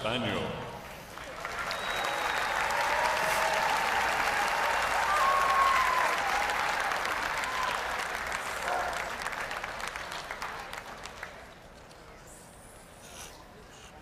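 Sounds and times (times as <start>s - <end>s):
audience applauding: 1.1s - 11.8s.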